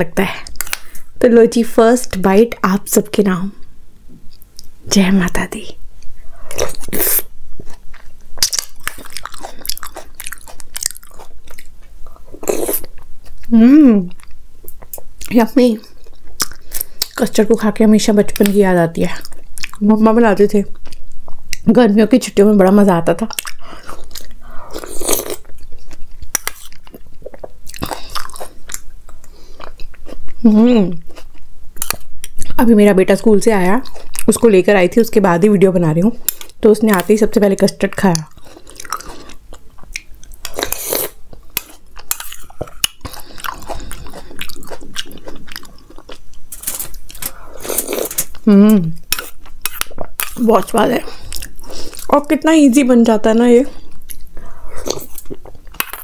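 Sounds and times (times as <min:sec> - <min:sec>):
soft chewing: 0:03.6 - 0:04.8, 0:06.0 - 0:17.3, 0:18.4 - 0:19.9, 0:20.6 - 0:21.6, 0:23.3 - 0:32.6, 0:33.8 - 0:34.4, 0:37.9 - 0:52.3, 0:53.6 - 0:56.0
person humming mmm: 0:13.5 - 0:14.2, 0:48.4 - 0:49.0.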